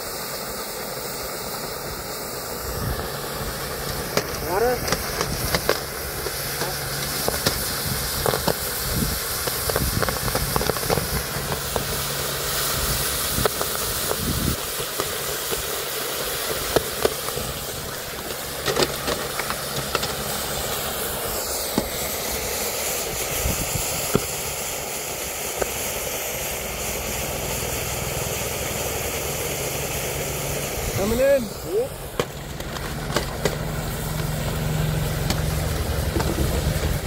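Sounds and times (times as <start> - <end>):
hiss of boiling water and steam: 0.0 - 37.0
sharp cracks and pops: 3.8 - 12.1, 13.3 - 20.8, 32.1 - 34.6, 35.2 - 37.0.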